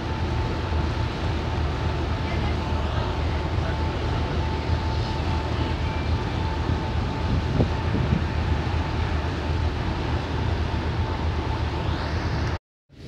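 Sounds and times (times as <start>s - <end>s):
boat engine rumbling: 0.0s - 12.6s
churning wake: 0.0s - 12.6s
wind rushing: 6.6s - 12.1s.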